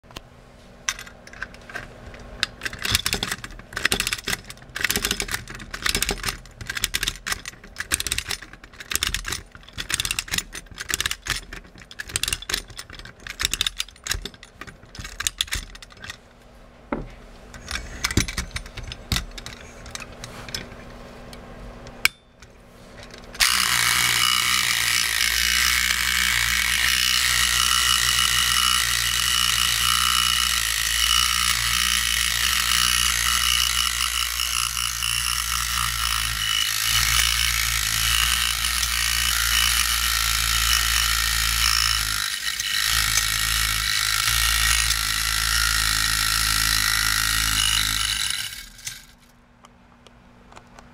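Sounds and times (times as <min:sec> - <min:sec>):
clockwork ratchet clicks: 0:02.4 - 0:16.2, 0:23.4 - 0:49.2
clockwork motor whirring: 0:23.4 - 0:49.3.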